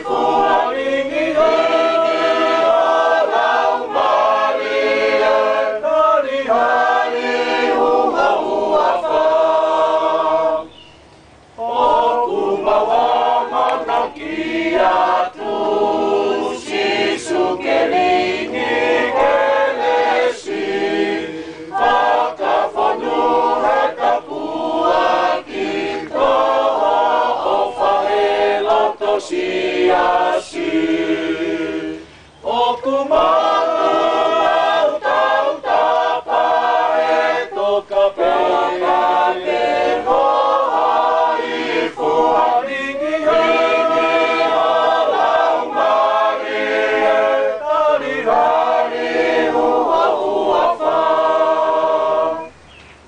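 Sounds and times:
mixed choir singing unaccompanied: 0.0 - 53.0.

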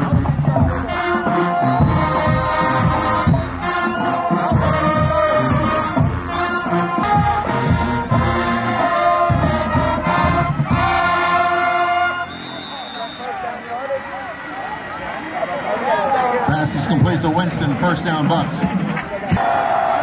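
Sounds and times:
brass horns playing held notes: 0.0 - 13.5.

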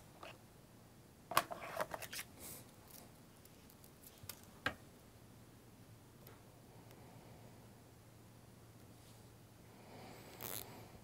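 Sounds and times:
small items handled on a workbench: 1.3 - 4.8.

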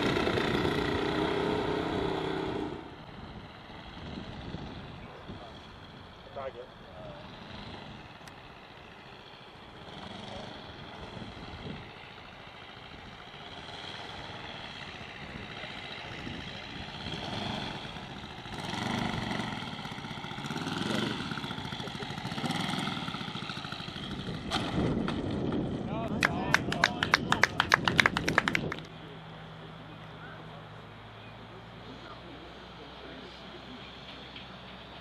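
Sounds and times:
model aircraft engine running: 0.0 - 25.9.

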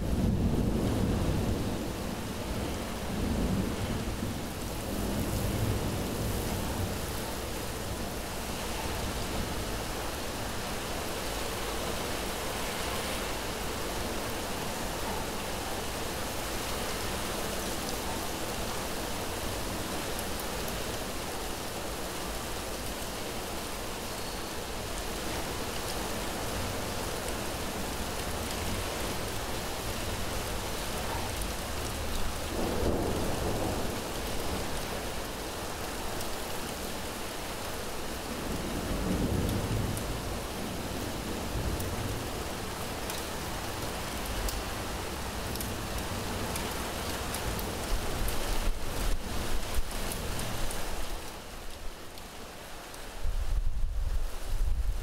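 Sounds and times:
heavy rain: 0.0 - 55.0
low rolls of thunder: 32.4 - 34.8.

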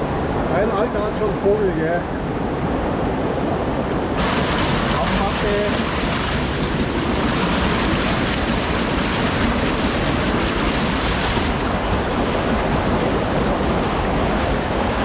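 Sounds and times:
wind rumble on microphone: 0.0 - 15.0
creek rushing over rocks: 4.2 - 15.0.

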